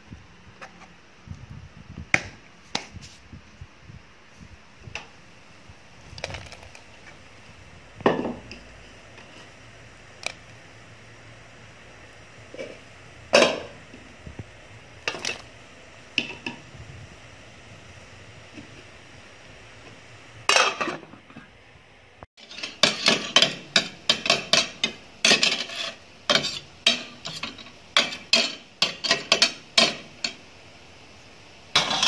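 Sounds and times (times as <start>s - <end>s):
kitchen containers knocking and clinking: 8.0s - 8.6s, 12.6s - 13.8s, 15.0s - 15.5s, 22.4s - 30.4s, 31.8s - 32.0s.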